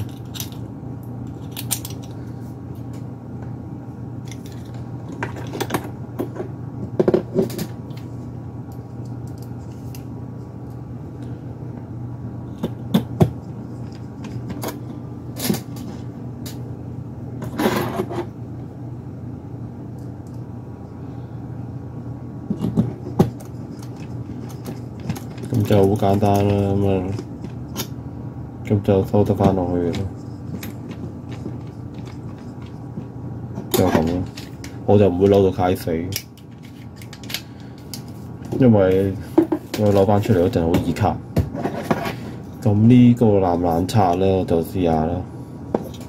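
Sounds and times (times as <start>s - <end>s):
small metal parts clicking: 0.0s - 0.6s, 1.2s - 2.2s
steady low hum: 0.0s - 46.0s.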